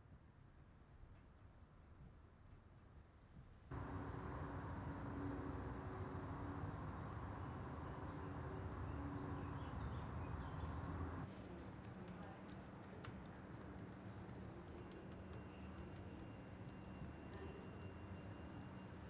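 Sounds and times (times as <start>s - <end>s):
faint steady hum: 3.6s - 19.0s
typing on laptop keyboard: 11.2s - 18.0s.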